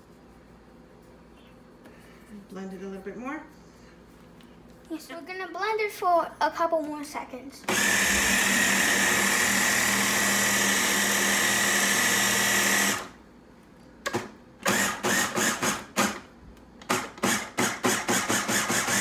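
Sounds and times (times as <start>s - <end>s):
food chopper motor running: 7.6s - 13.2s, 14.6s - 16.2s, 16.8s - 19.0s
food chopper pulses: 7.6s - 13.2s, 14.1s - 16.2s, 16.8s - 19.0s.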